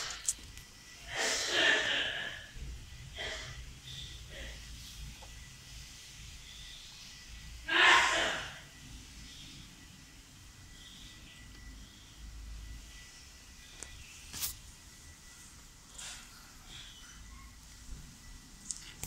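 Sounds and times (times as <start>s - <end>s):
breathy puffs of breath: 1.0s - 4.8s.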